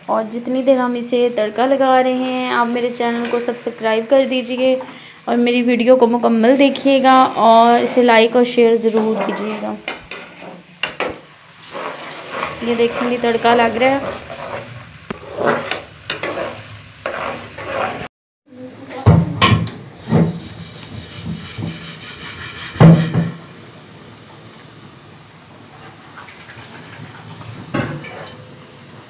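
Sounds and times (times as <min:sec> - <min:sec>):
garlic sizzling in oil: 0:00.4 - 0:18.1
spatula scraping and tapping pan: 0:08.9 - 0:18.1.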